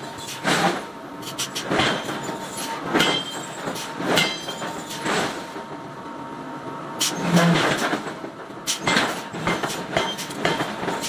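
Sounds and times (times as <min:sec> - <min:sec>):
hammer on hot iron: 0:08.7 - 0:11.0.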